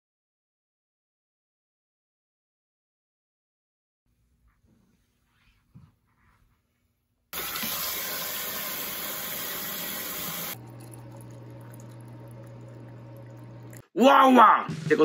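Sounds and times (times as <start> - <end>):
faucet running into sink: 7.4 - 13.9
water pouring into a glass: 7.4 - 13.9
low hum: 10.6 - 13.9.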